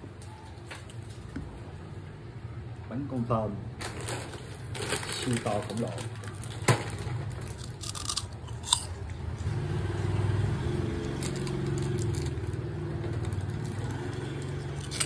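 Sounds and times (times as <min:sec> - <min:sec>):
snack stick crunching: 0:07.5 - 0:09.2.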